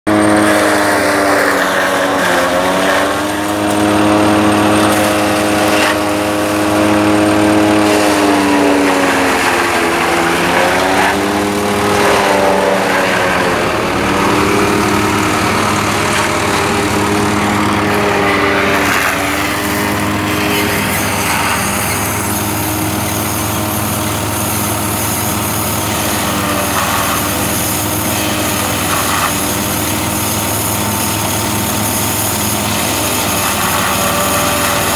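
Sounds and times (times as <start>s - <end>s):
high whine: 0.1s - 23.2s
tractor engine under load: 0.1s - 34.9s.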